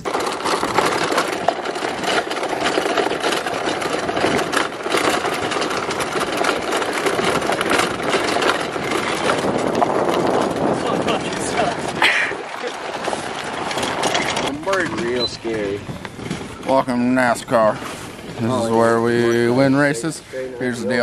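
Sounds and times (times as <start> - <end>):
tyres crunching on gravel: 0.0 - 21.0.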